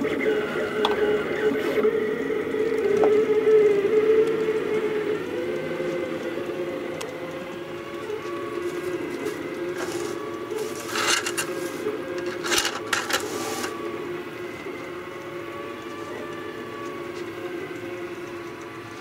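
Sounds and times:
printer stepper motors whining: 0.0s - 19.0s
rustling noise: 8.6s - 13.8s.

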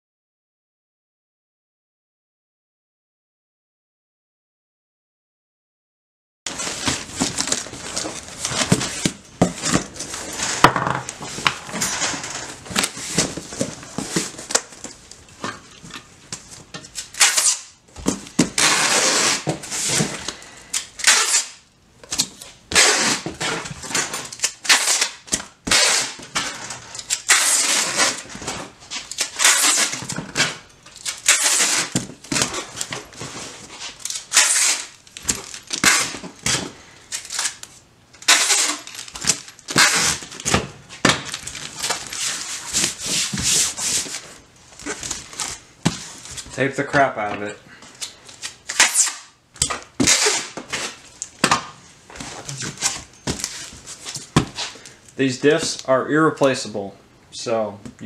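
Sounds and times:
packing tape pulled off roll: 16.8s - 46.5s, 48.0s - 51.4s.

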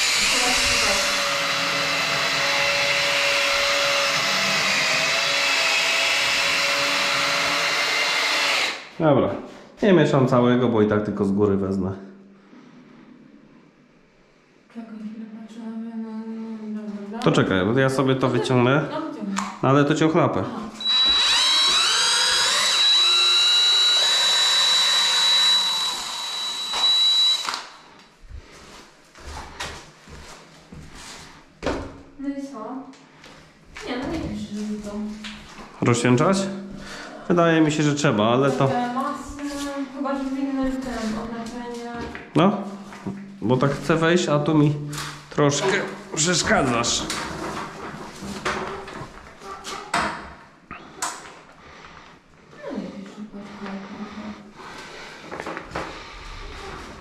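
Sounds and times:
electric drill mixing in bucket: 0.0s - 8.9s, 20.8s - 27.8s
electric paddle mixer stirring: 0.0s - 8.9s, 20.8s - 27.5s.

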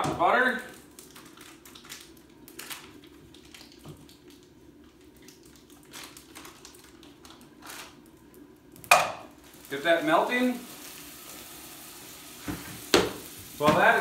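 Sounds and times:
low steady hum: 0.0s - 14.0s
butter wrapper rustling: 0.5s - 8.5s.

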